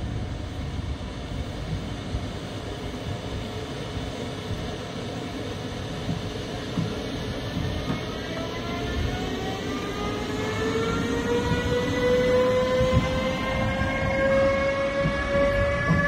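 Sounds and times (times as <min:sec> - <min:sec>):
train low rumble: 0:00.0 - 0:16.0
rising traction drive whine: 0:08.0 - 0:16.0.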